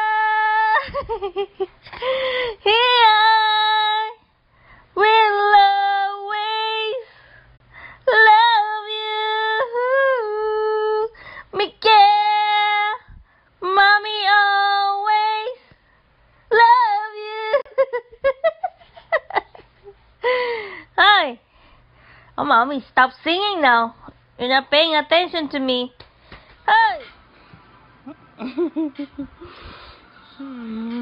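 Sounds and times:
woman singing unaccompanied: 0.0 - 0.9, 2.6 - 4.2, 5.0 - 7.2, 8.0 - 15.7, 16.5 - 17.8.

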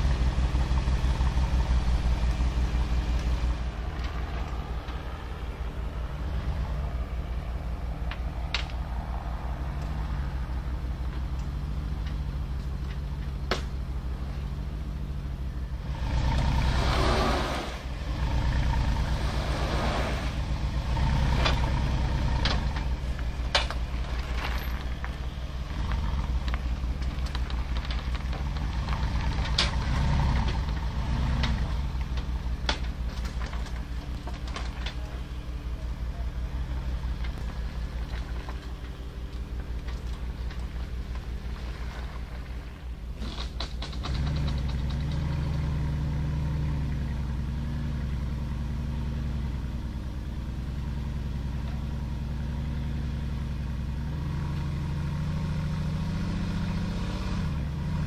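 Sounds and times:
engine running at low revs: 0.0 - 58.0
clicks and clanks from steel ramps: 25.8 - 35.2, 43.1 - 45.7.

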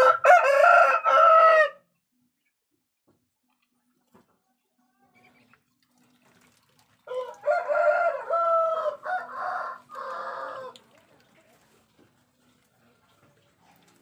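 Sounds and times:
rooster crowing: 0.0 - 1.8, 7.1 - 10.8.

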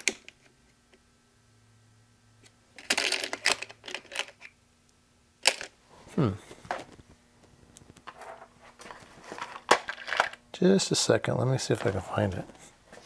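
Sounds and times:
small hard parts rattling: 2.8 - 4.4, 8.1 - 10.4.

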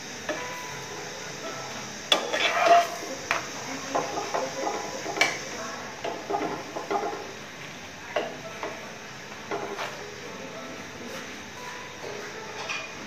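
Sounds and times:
faint frying sizzle: 0.0 - 13.0
metal spatula scraping a frying pan: 2.1 - 3.0.

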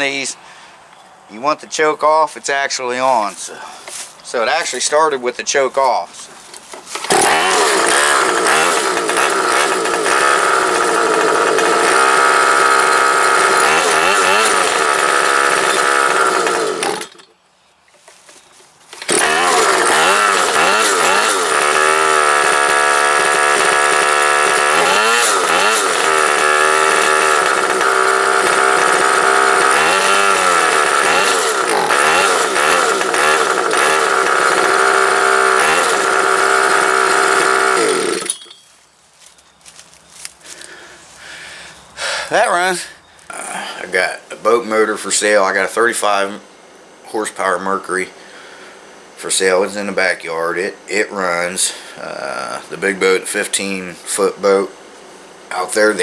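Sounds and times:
two-stroke outboard motor running: 6.9 - 17.2, 19.0 - 38.3.

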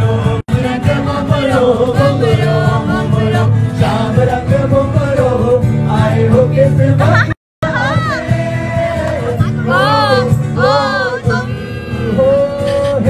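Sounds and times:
acoustic guitar strumming: 0.0 - 13.0
person singing: 0.0 - 13.0.

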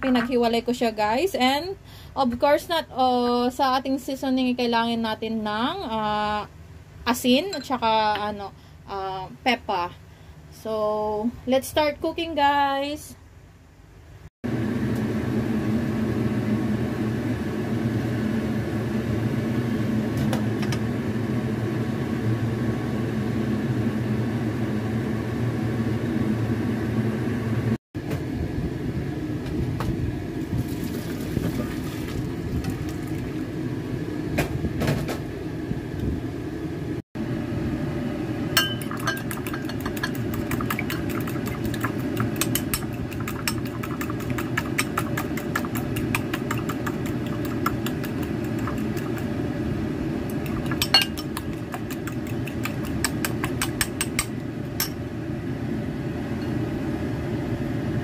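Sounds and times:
pot boiling on gas stove: 14.5 - 27.7, 28.4 - 36.5, 37.2 - 58.0
fork beating eggs in a bowl: 38.6 - 49.3, 50.3 - 54.9.

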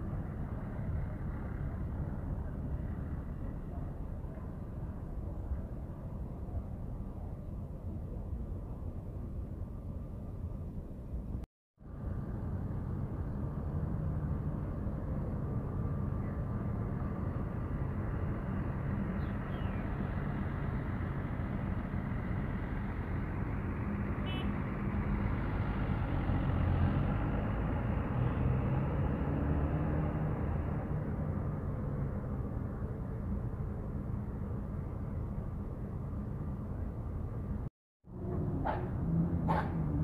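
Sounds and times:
bus diesel engine passing: 0.0 - 6.6, 11.9 - 40.0.

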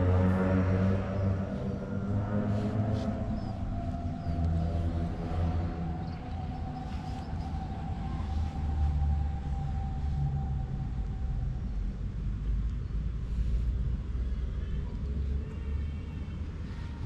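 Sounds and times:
thin steady whine: 0.0 - 12.0
vehicle engine rumbling: 0.0 - 17.0.

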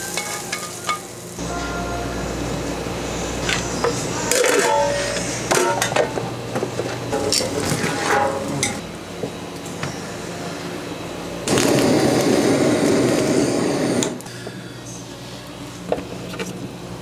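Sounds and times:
metal pans and utensils clinking: 0.0 - 1.2, 4.2 - 8.8
steady background hum: 0.0 - 17.0.

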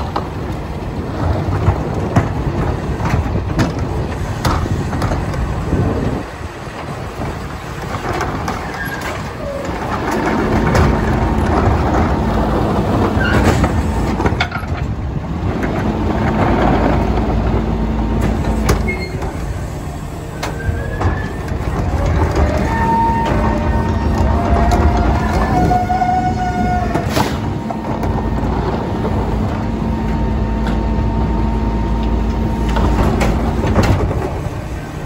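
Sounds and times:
hydraulic hum: 0.0 - 35.0
short squeaks: 18.7 - 19.5.

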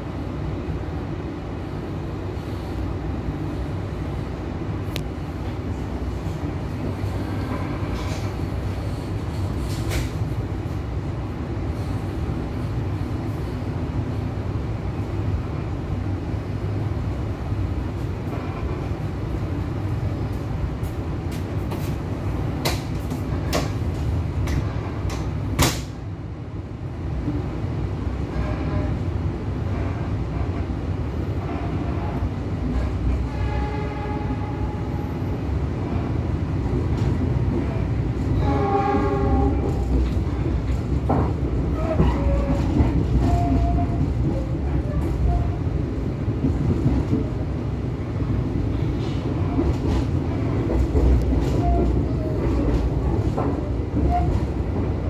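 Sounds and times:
passing train: 0.0 - 55.0
train rumble inside carriage: 0.0 - 55.0
train horn: 33.2 - 35.2, 38.4 - 39.8.

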